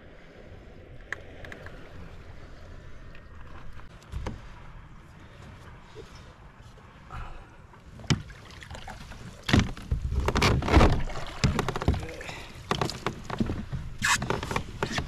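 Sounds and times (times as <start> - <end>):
knocks and thumps on plastic kayak hull: 8.0 - 8.4, 9.4 - 15.0.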